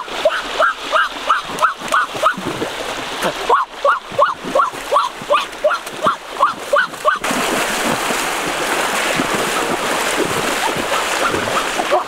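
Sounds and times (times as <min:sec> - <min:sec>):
river water rushing: 0:00.0 - 0:12.0
dog barking: 0:00.2 - 0:02.4, 0:03.5 - 0:07.2, 0:10.9 - 0:12.0.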